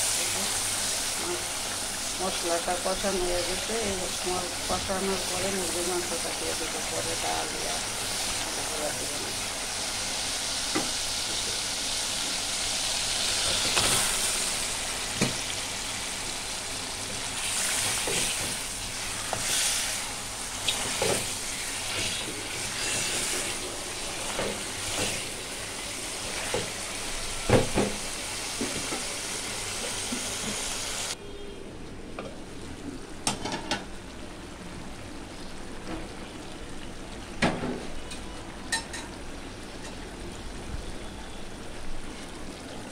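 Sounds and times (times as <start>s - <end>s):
oil sizzling in a pot: 0.0s - 31.2s.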